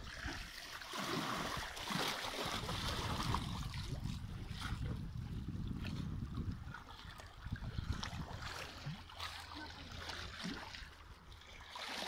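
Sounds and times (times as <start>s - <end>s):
wind rumble on microphone: 1.4s - 9.1s.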